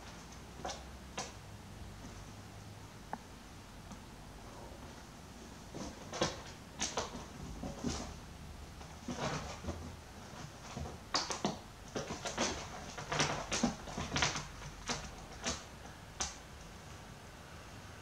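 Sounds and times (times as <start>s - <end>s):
kittens' claws scratching upholstery: 0.0s - 1.4s, 4.9s - 16.5s.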